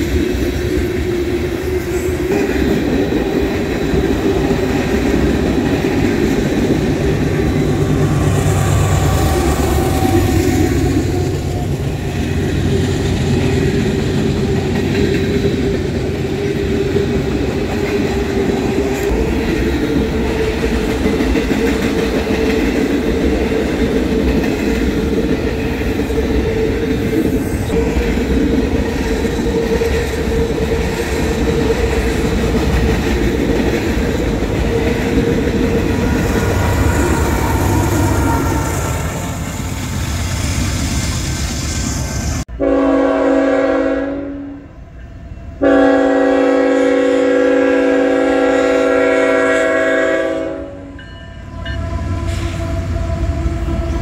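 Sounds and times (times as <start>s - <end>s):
freight train wheels clattering: 0.0s - 42.4s.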